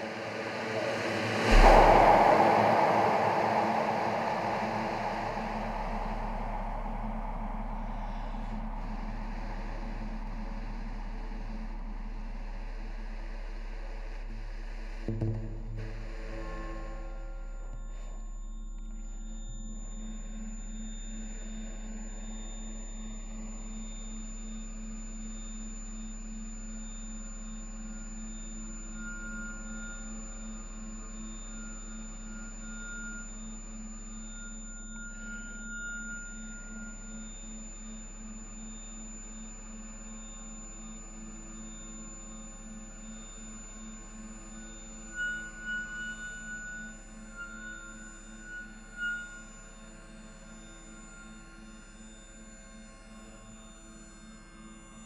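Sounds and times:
pulsing middle synth tone: 0:00.0 - 0:11.8
low synth drone: 0:00.0 - 0:49.1
thin high whistling tones: 0:00.2 - 0:10.2, 0:28.9 - 0:38.3, 0:43.9 - 0:49.9.

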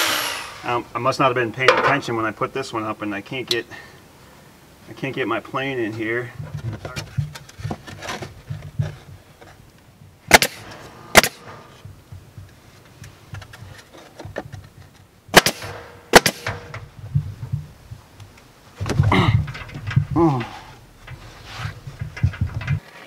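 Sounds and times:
pneumatic stapler firing: 0:10.3 - 0:11.6, 0:15.3 - 0:16.8.

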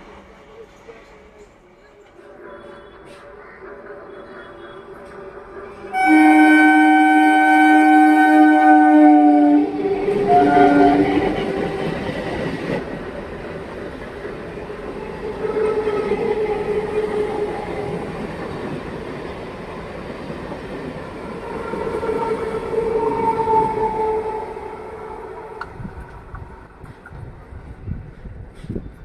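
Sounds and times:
train horn blasts: 0:05.9 - 0:11.4, 0:21.4 - 0:25.8
train wheels clattering on rails: 0:09.8 - 0:23.8.

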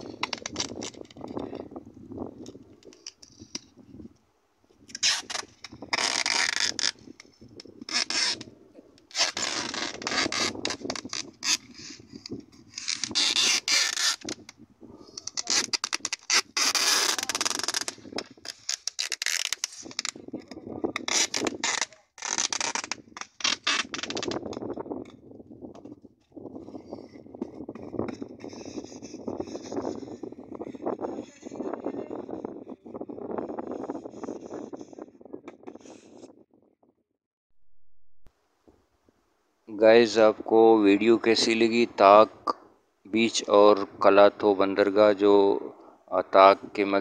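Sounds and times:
packing tape ripping off roll: 0:00.0 - 0:01.2, 0:04.9 - 0:14.6, 0:15.2 - 0:20.2, 0:21.0 - 0:24.6.

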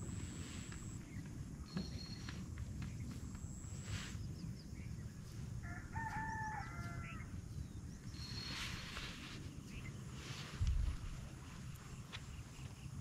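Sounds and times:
rooster crowing: 0:05.6 - 0:07.4
steady low rumble: 0:07.1 - 0:13.0.

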